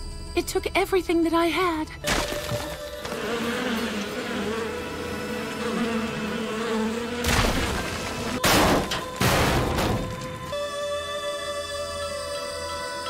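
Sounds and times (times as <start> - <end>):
low wavering buzzing drone: 2.0 - 13.0
crashing rock and rubble: 7.2 - 10.5.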